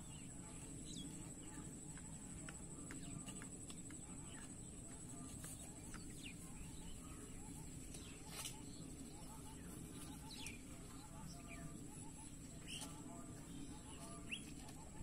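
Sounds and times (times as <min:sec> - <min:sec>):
bird chirps and calls: 0:05.9 - 0:15.0.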